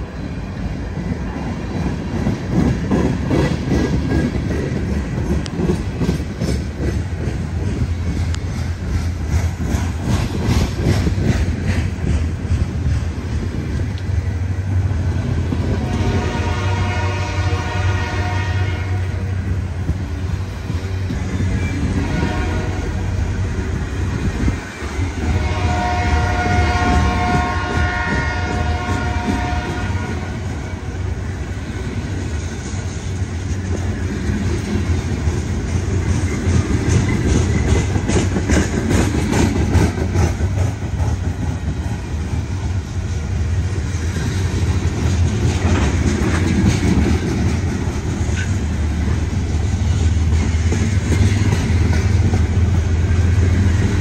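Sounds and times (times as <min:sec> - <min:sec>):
low locomotive rumble: 0:00.0 - 0:54.0
train air horn chord: 0:15.8 - 0:19.2, 0:22.0 - 0:23.0, 0:25.2 - 0:30.4.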